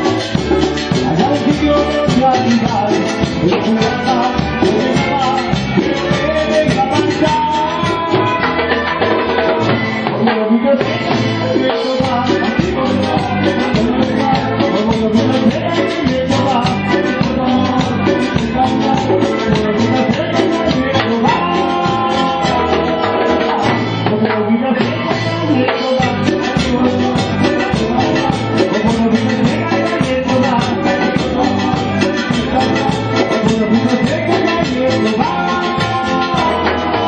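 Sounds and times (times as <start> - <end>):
keyboard melody: 0.0 - 37.0
live band playing dance music: 0.0 - 37.0
percussion beat: 0.0 - 37.0.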